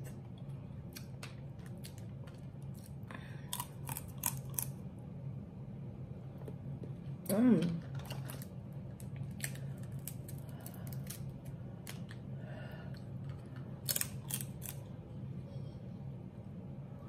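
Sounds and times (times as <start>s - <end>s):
steady low hum: 0.0s - 17.0s
crab shells cracking: 13.8s - 14.8s.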